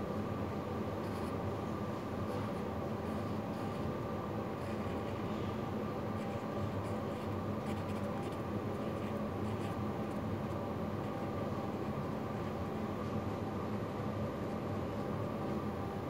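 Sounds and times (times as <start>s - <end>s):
steady background hum: 0.0s - 16.0s
felt pen scratching on paper: 1.0s - 1.4s, 2.2s - 12.0s.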